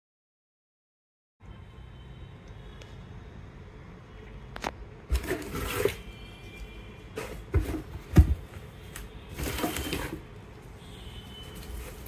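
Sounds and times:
cardboard packing rustling: 0:05.1 - 0:06.2, 0:07.1 - 0:10.4, 0:11.3 - 0:12.0.

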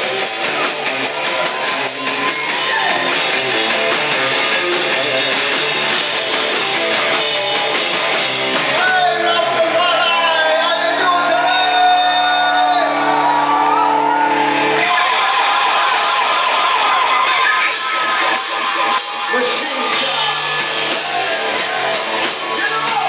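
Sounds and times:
drum kit: 0:00.0 - 0:10.2, 0:17.6 - 0:23.0
distorted electric guitar: 0:00.0 - 0:23.0
rock band playing loudly: 0:00.0 - 0:23.0.

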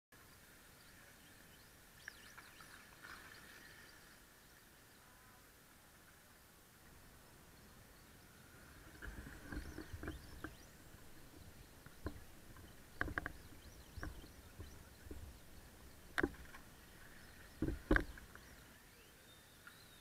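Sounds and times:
sharp clicks and knocks: 0:09.0 - 0:16.7, 0:17.6 - 0:18.4.

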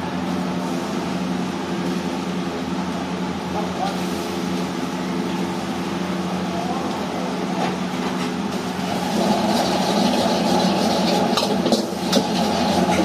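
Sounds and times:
extractor fan hum: 0:00.0 - 0:13.0
rice sizzling in a wok: 0:00.0 - 0:13.0
metal ladle scraping wok: 0:08.8 - 0:13.0.

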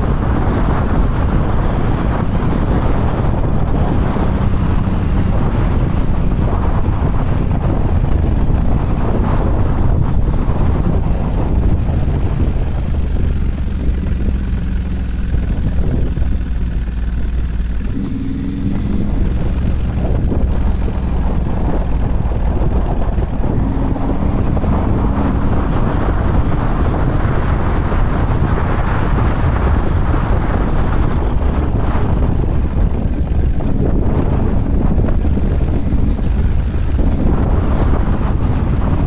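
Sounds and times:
motorcycle engine running: 0:00.0 - 0:39.0
wind on microphone: 0:00.0 - 0:39.0.

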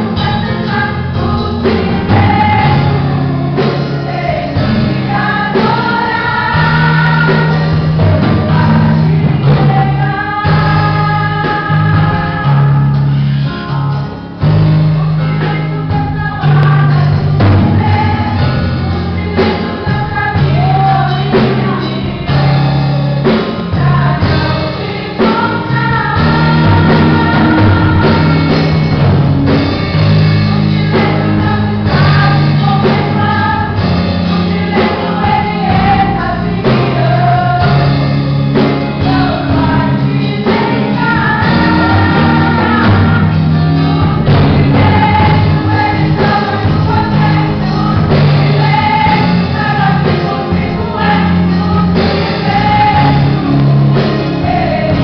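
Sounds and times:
low instrumental backing: 0:00.0 - 0:55.0
women's group singing gospel: 0:00.0 - 0:55.0.

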